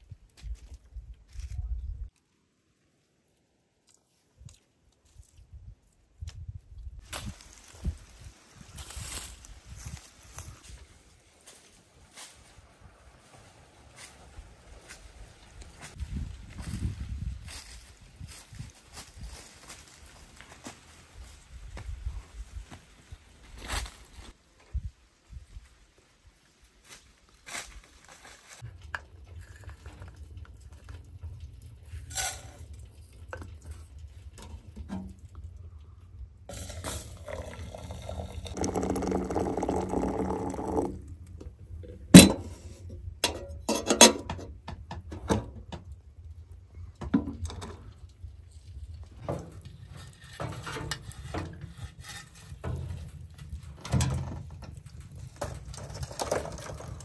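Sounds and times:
water pouring into kettle: 0:36.5 - 0:41.2, 0:55.4 - 0:57.0
sharp metallic clank: 0:42.1 - 0:44.3
knocks and clinks: 0:42.1 - 0:44.6.

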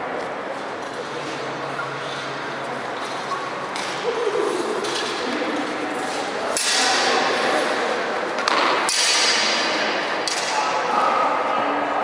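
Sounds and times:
swords clashing: 0:06.5 - 0:07.8, 0:08.5 - 0:10.8.

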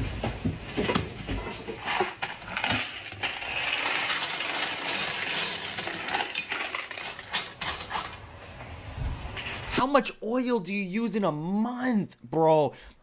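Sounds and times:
dry pasta pouring into pot: 0:01.8 - 0:08.1.

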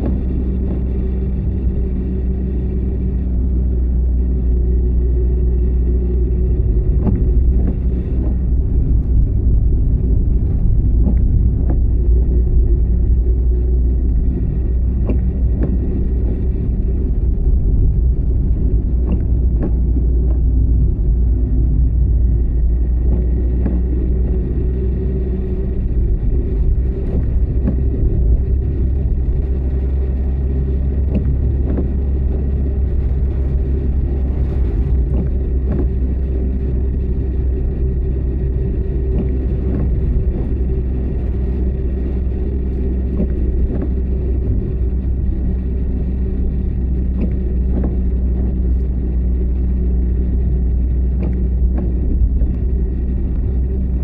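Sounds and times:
car driving rumble: 0:00.0 - 0:54.0
faint ticks: 0:51.2 - 0:52.7.

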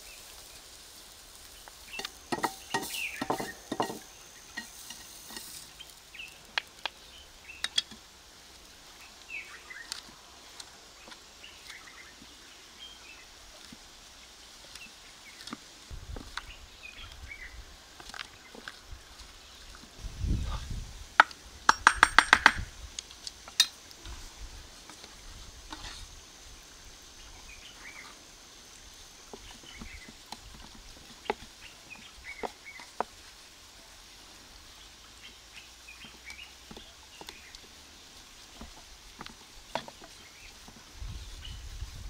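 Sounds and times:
faint bird chirps: 0:01.8 - 0:07.8
wooden spoon scraping bowl: 0:02.0 - 0:05.8, 0:25.7 - 0:26.1.

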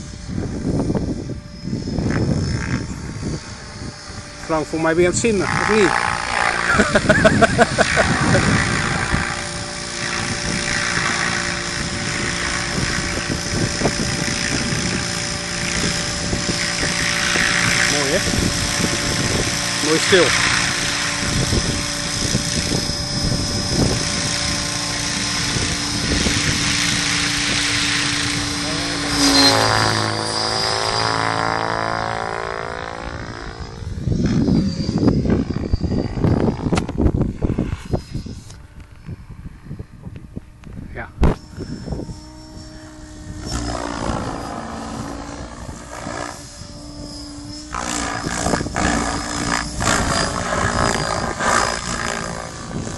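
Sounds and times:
model helicopter rotor whirring: 0:00.0 - 0:52.9
wind buffeting microphone: 0:00.0 - 0:52.9.

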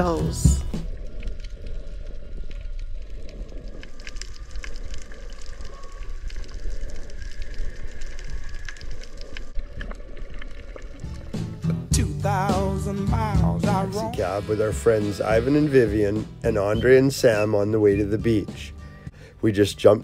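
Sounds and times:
small crackling clicks: 0:00.9 - 0:11.1.

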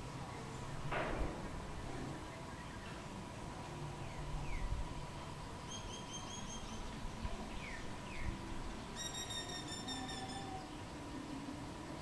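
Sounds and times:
myna calling: 0:09.0 - 0:10.9.

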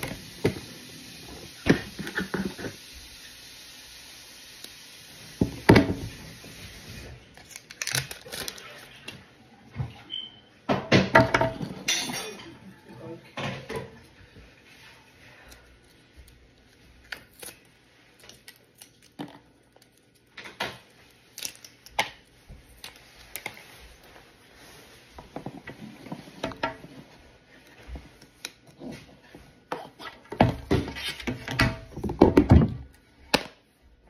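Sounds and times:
plastic packaging film crinkling: 0:06.9 - 0:09.1
knocks and rustles of handling: 0:21.9 - 0:33.5.

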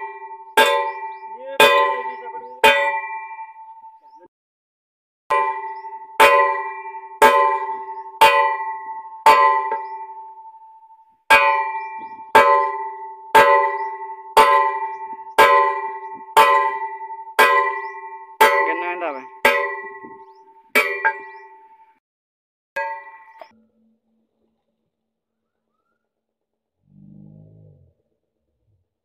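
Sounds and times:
hammer ringing on steel pipe: 0:00.0 - 0:04.1, 0:05.3 - 0:21.7, 0:22.8 - 0:23.5.

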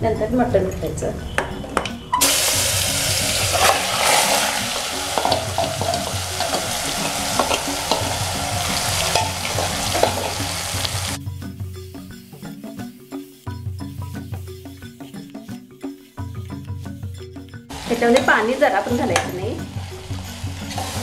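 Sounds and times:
metal spoon scraping a pot: 0:01.7 - 0:11.1, 0:17.8 - 0:21.0
meat sizzling in hot oil: 0:02.2 - 0:11.2, 0:17.7 - 0:21.0.

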